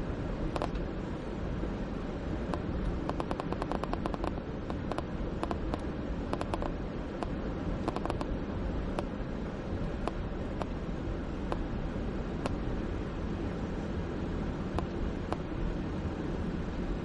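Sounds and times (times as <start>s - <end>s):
car cabin road rumble: 0.0s - 17.0s
sharp clicks: 2.5s - 7.3s, 7.9s - 8.3s.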